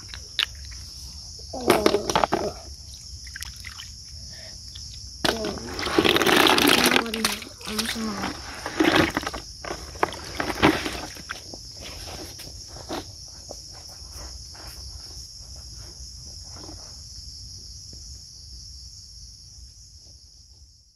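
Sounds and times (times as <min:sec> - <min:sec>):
insects chorus: 0:00.0 - 0:20.9
splashing footsteps in water: 0:03.3 - 0:03.9
bucket knocks: 0:05.2 - 0:11.4.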